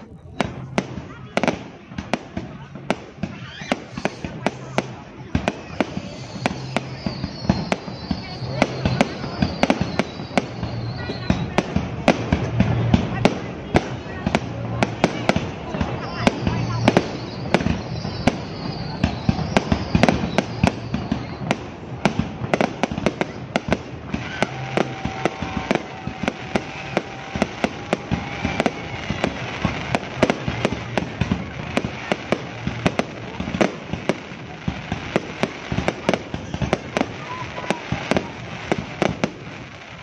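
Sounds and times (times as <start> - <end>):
fireworks bangs: 0.0 - 40.0.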